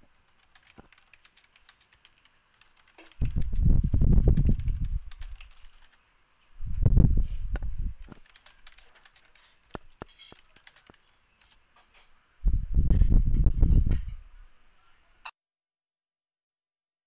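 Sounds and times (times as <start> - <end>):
computer keyboard typing: 0.3 - 6.0, 8.0 - 11.6.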